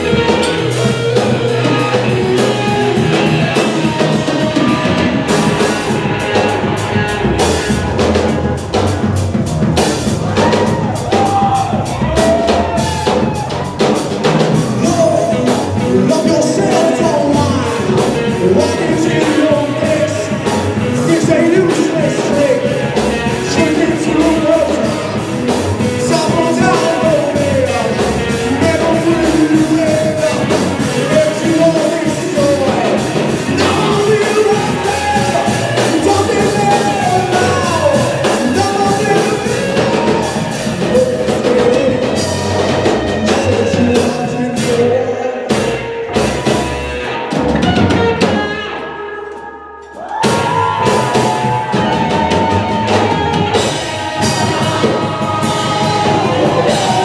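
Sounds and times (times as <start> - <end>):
rock band playing live: 0.0 - 57.0
person singing: 10.2 - 57.0.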